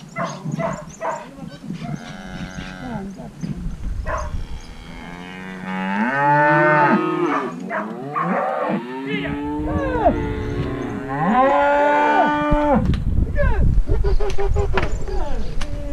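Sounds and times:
cattle mooing: 4.6s - 12.8s.

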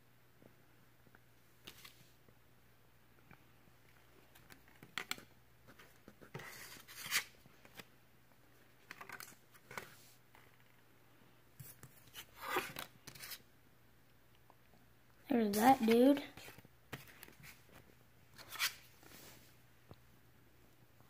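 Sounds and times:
cards sliding on a tabletop: 11.6s - 13.4s, 18.4s - 19.6s.

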